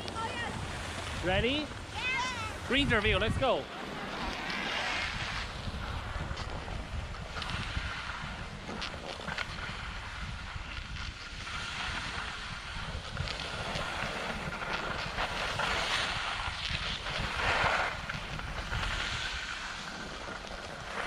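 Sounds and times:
skis scraping over snow: 0:00.0 - 0:21.0
wind rumbling on microphone: 0:00.0 - 0:21.0.

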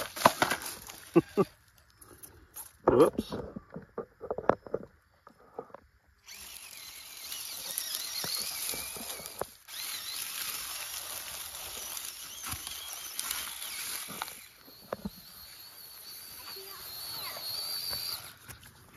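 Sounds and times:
leaves crackling under tyres: 0:00.0 - 0:01.9, 0:06.2 - 0:18.9
toy truck motor whining: 0:06.2 - 0:18.9.

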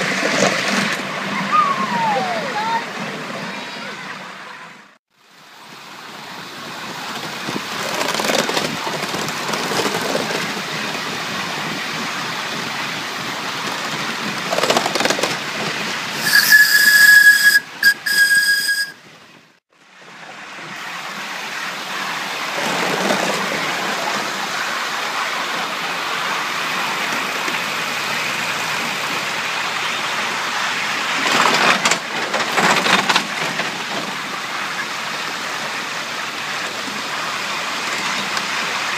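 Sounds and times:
model steam locomotive running: 0:05.6 - 0:19.0, 0:20.6 - 0:38.9
high whistle blasts: 0:16.2 - 0:19.0.

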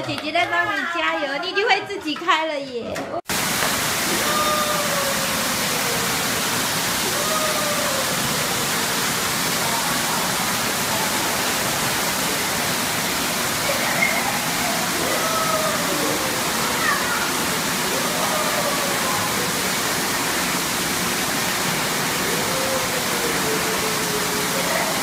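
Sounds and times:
shower water splashing into pool: 0:03.3 - 0:25.0
faint high voices: 0:04.1 - 0:06.2, 0:07.0 - 0:09.0, 0:13.6 - 0:19.7, 0:22.2 - 0:25.0.

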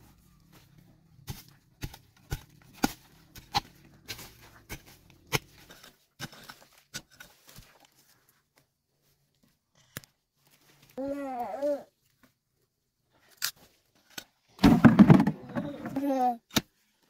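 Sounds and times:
hand hoe chopping into soil: 0:01.2 - 0:07.8.

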